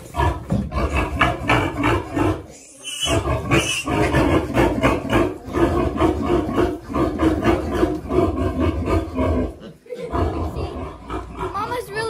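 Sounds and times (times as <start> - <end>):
piglets squealing: 0.9 - 6.5.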